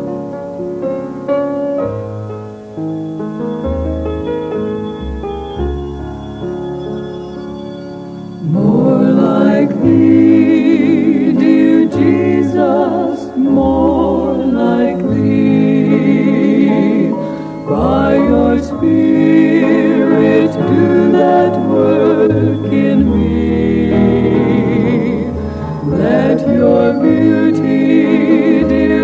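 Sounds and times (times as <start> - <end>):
keyboard chords: 0.0 - 29.0
person singing with vibrato: 8.4 - 29.0.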